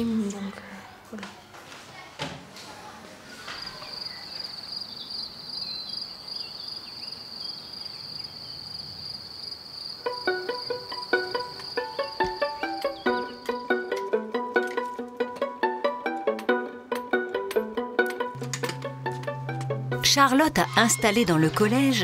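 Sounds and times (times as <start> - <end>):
insects trilling: 3.6 - 13.8
plucked string music: 10.0 - 22.0.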